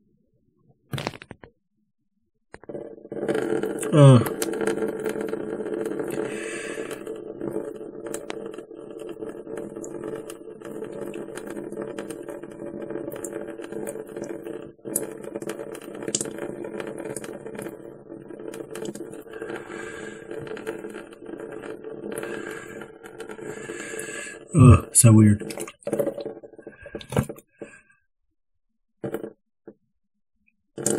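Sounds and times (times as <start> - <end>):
water trickling into a sink: 5.0 - 27.3.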